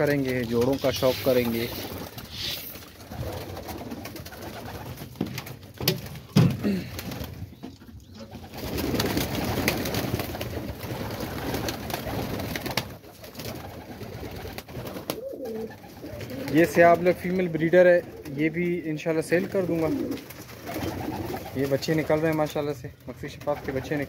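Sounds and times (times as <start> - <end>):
pigeons cooing: 0.8 - 5.0, 13.5 - 18.4, 19.4 - 22.1.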